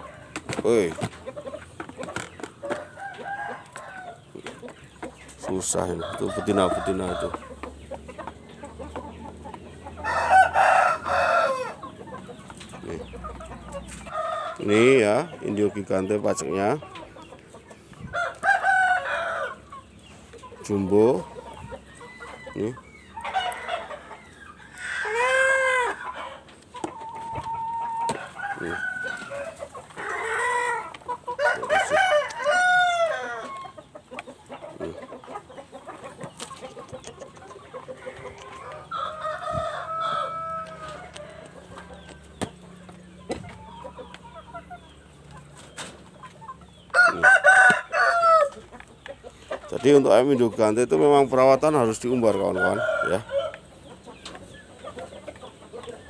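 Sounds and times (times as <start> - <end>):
chickens clucking: 0.0 - 56.0
rooster crowing: 2.9 - 4.2, 5.9 - 7.4, 10.0 - 11.8, 18.1 - 19.6, 27.4 - 33.7, 38.8 - 41.8, 46.9 - 48.6, 52.3 - 53.6.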